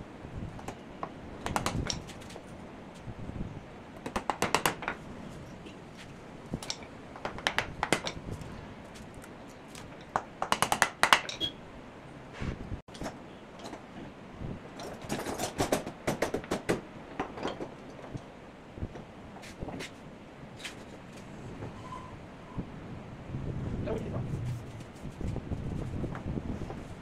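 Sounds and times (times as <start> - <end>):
knocks and taps of tools on wood: 10.1 - 11.3.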